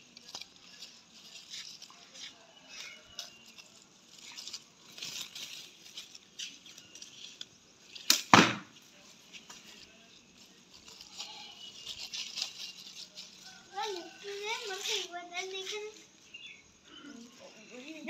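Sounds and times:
faint rustling: 8.9s - 18.0s.

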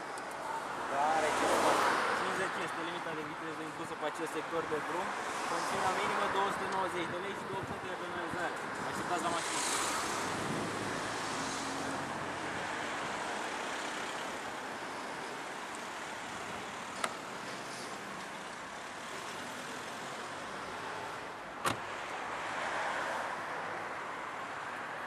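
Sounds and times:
passing road traffic: 0.0s - 25.0s
car door shutting: 21.6s - 21.9s.

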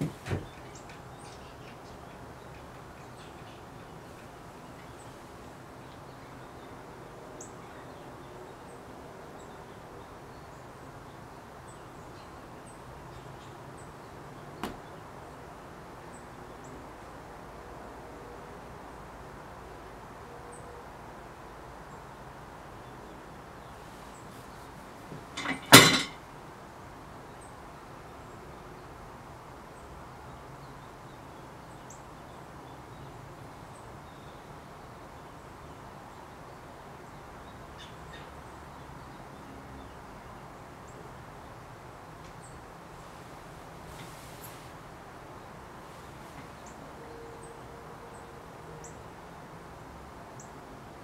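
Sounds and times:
faint background hiss: 0.0s - 51.0s
loud knock: 14.6s - 14.9s.

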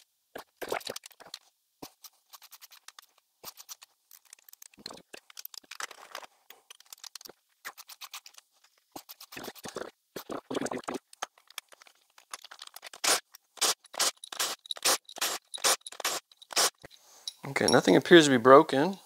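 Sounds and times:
ratchet clicking and scraping: 11.4s - 17.5s.

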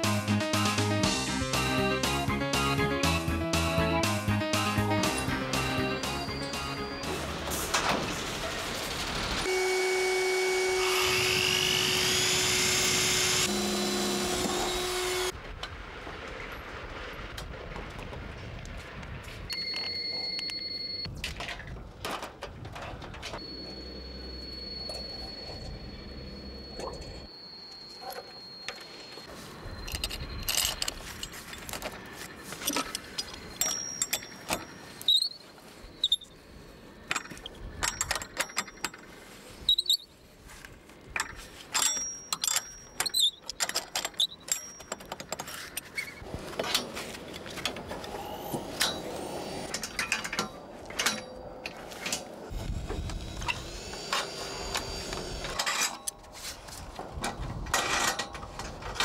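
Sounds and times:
brief high squeaks: 35.0s - 36.4s, 39.6s - 40.1s
metal brackets clattering: 41.1s - 47.9s, 49.6s - 52.4s, 57.2s - 59.0s.

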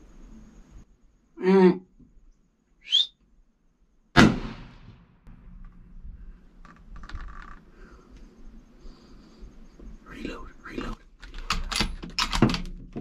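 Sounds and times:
high rising whistle: 2.8s - 3.2s
rifle shot: 4.2s - 5.5s
faint clicks and rustles: 5.6s - 10.0s.

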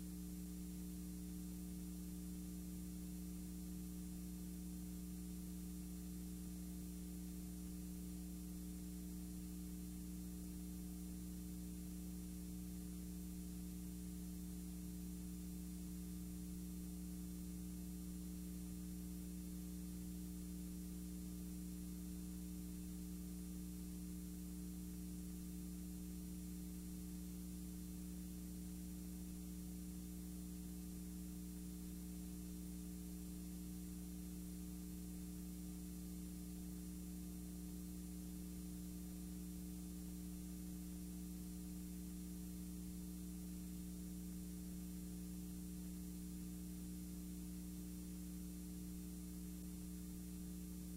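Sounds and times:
faint hiss: 0.0s - 50.9s
steady electrical hum: 0.0s - 50.9s.

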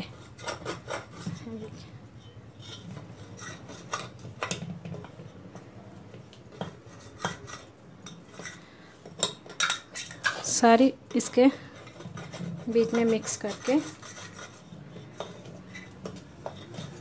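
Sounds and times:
spoon scraping metal pot: 0.0s - 5.7s, 6.5s - 17.0s.

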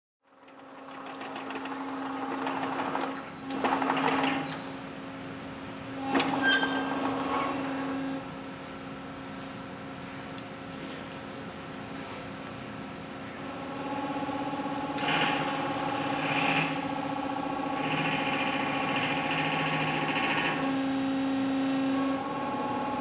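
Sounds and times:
rattly machine noise: 0.2s - 4.9s, 5.8s - 8.3s, 13.4s - 23.0s
electric loader humming: 0.2s - 23.0s.

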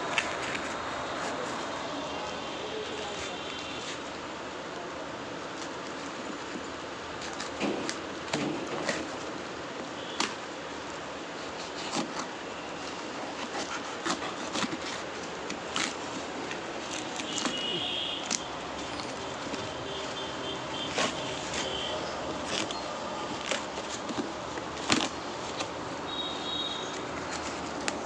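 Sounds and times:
cardboard box tearing open: 13.0s - 17.7s.

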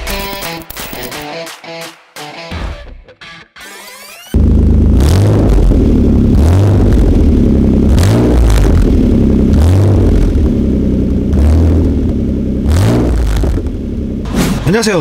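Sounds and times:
car engine revving: 4.3s - 14.7s.

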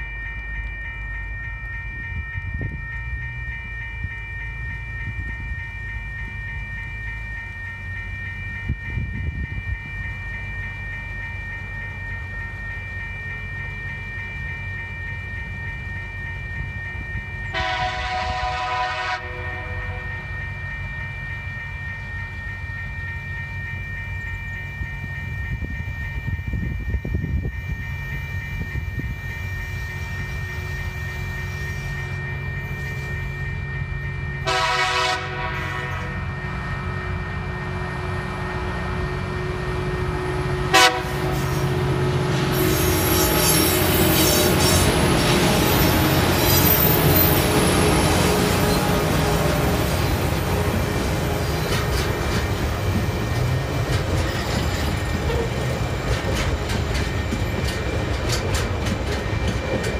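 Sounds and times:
level crossing bell ringing: 0.0s - 18.4s
train rolling: 0.0s - 59.9s
train horn: 17.5s - 20.3s, 34.4s - 37.5s, 40.6s - 52.1s
locomotive engine: 28.4s - 59.9s.

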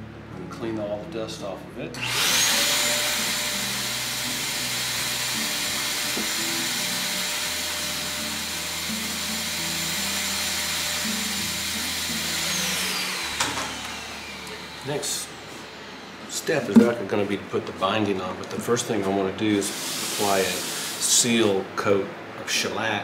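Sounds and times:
vacuum cleaner motor whine: 2.0s - 16.0s.

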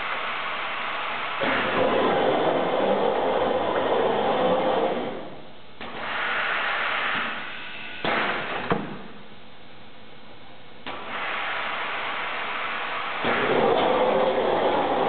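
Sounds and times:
machinery hissing: 10.9s - 15.0s.

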